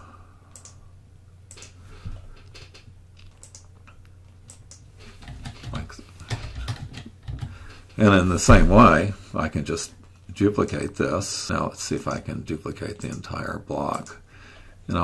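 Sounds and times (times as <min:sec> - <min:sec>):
low steady hum: 0:00.0 - 0:15.0
keyboard and mouse clicks: 0:00.5 - 0:00.8, 0:01.5 - 0:01.8, 0:02.4 - 0:07.6.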